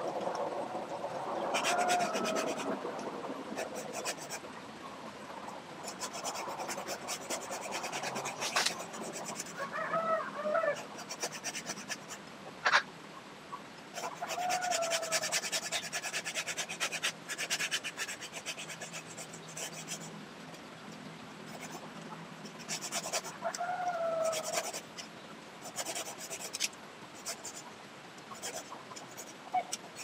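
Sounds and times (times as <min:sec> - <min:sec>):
hand saw rasping through branch: 0:01.5 - 0:02.7, 0:03.6 - 0:04.4, 0:05.8 - 0:09.6, 0:10.8 - 0:12.2, 0:14.0 - 0:20.1, 0:21.5 - 0:21.8, 0:22.6 - 0:23.4, 0:24.2 - 0:25.0, 0:25.6 - 0:27.6, 0:28.4 - 0:30.0.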